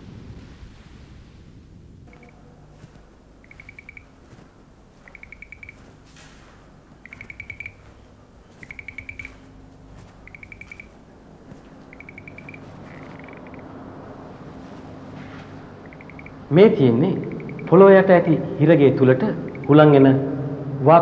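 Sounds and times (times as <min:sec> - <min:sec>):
faint low hum: 0:00.0 - 0:21.0
cricket chirping: 0:02.1 - 0:16.5, 0:17.2 - 0:17.9, 0:19.4 - 0:19.8.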